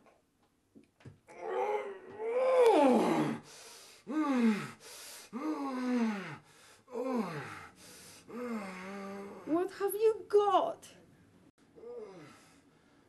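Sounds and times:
person moaning: 1.3s - 3.4s, 5.4s - 7.6s, 8.3s - 9.5s, 11.8s - 12.4s.

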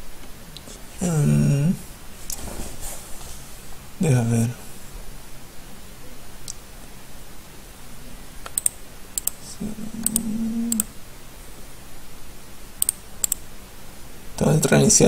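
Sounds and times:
low hum: 8.0s - 11.1s
computer mouse clicks: 8.4s - 9.4s, 12.8s - 13.4s.

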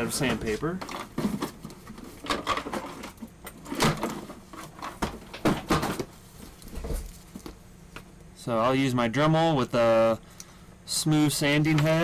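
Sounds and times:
objects knocking and clunking: 0.2s - 8.1s.

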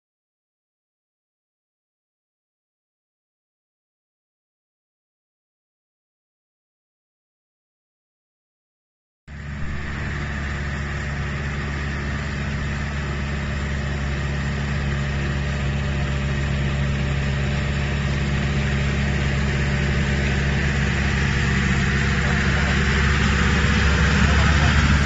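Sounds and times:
tractor engine running: 9.3s - 25.0s.

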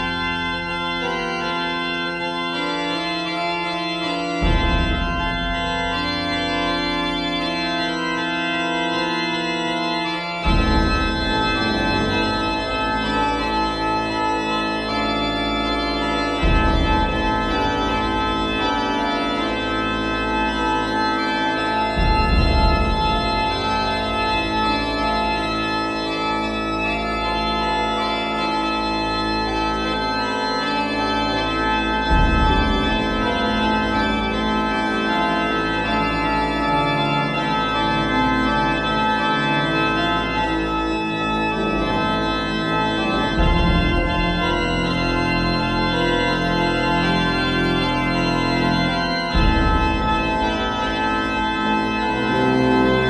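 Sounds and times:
organ chords: 0.0s - 53.0s
deep organ bass note: 4.0s - 8.0s, 10.3s - 26.8s, 29.6s - 36.0s, 39.9s - 53.0s.

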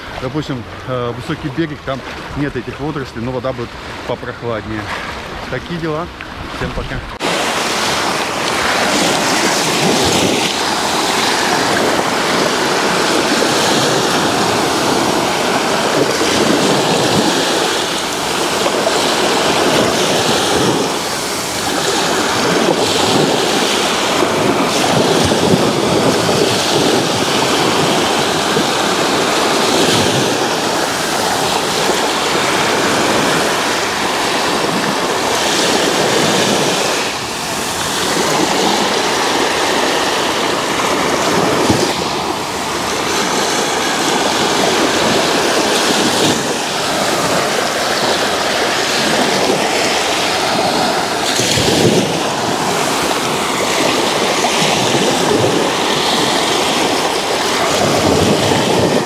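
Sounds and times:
waves washing over sand: 0.0s - 59.0s.

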